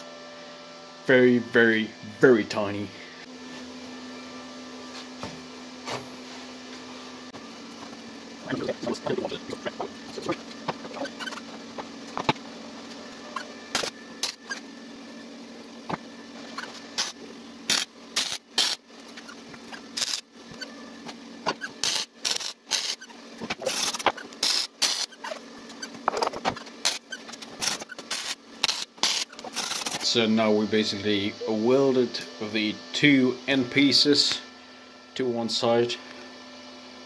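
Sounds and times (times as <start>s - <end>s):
steady low hum: 0.0s - 37.0s
welding arc crackle bursts: 17.0s - 18.9s, 20.0s - 20.3s, 21.8s - 23.0s, 23.6s - 25.2s, 26.8s - 30.0s.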